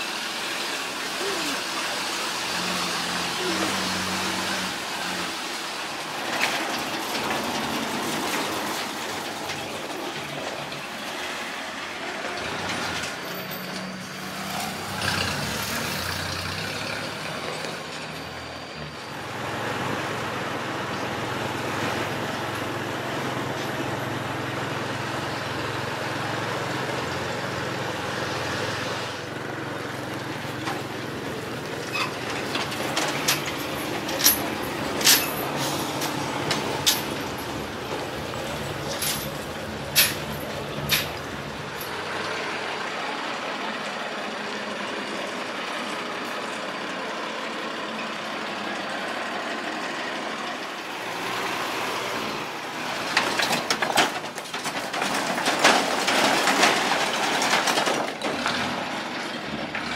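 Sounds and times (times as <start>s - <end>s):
truck engine droning: 0.0s - 59.9s
sharp metal clanks: 32.0s - 37.5s.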